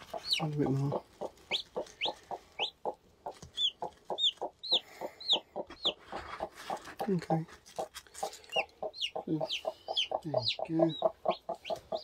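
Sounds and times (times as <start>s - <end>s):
chicks peeping: 0.0s - 12.0s
hen clucking: 0.0s - 12.0s.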